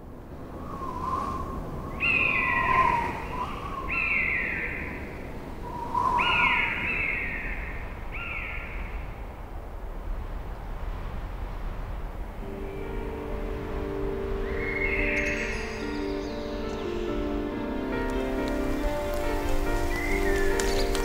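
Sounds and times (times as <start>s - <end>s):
low background noise: 0.0s - 21.0s
bird whistled cries: 1.9s - 5.0s, 5.7s - 8.6s, 14.4s - 16.9s, 19.8s - 21.0s.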